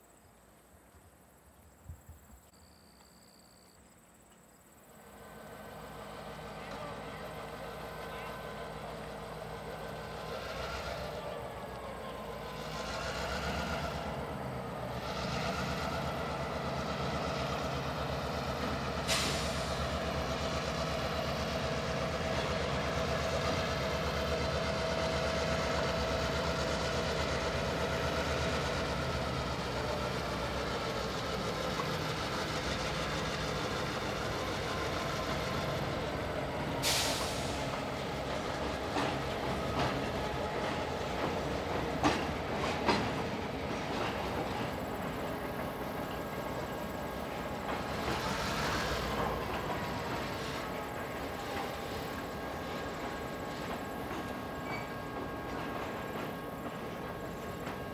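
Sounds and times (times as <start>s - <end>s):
diesel locomotive running: 0.1s - 57.9s
short sharp air hisses: 19.0s - 20.0s, 36.8s - 37.7s.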